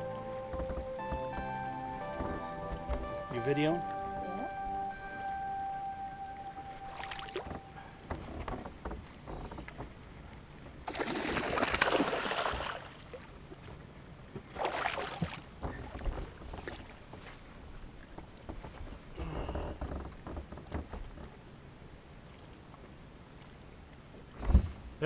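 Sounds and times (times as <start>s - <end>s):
fish splashing in water: 10.9s - 13.3s, 14.5s - 15.4s.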